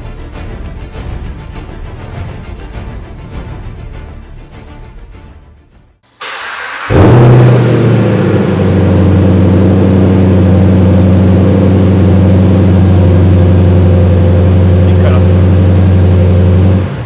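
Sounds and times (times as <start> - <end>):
engine revving then idling: 6.1 - 17.0
engine cranking: 6.2 - 15.2.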